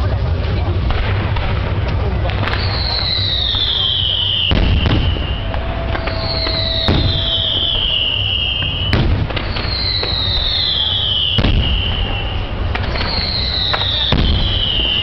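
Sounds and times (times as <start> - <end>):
low rumble: 0.0 - 14.7
fireworks bangs: 0.2 - 15.0
falling firework whistle: 2.4 - 15.0.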